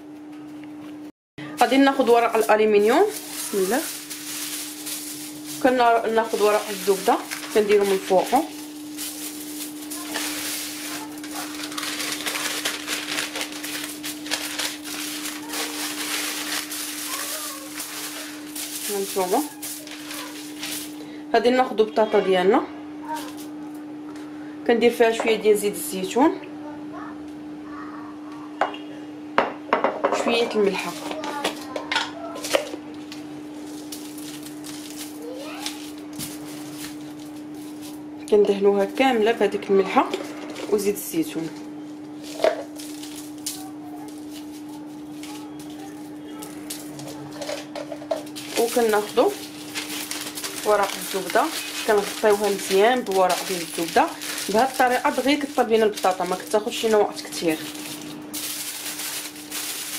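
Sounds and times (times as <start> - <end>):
paper and foil crinkling: 1.5 - 21.2, 23.1 - 23.8, 30.5 - 38.1, 40.0 - 59.9.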